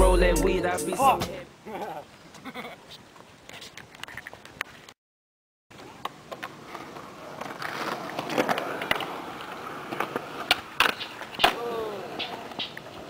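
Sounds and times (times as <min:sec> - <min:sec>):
skateboard wheels rolling on concrete: 0:01.1 - 0:05.0, 0:05.7 - 0:13.0
skateboard clacking on ground: 0:05.8 - 0:13.0.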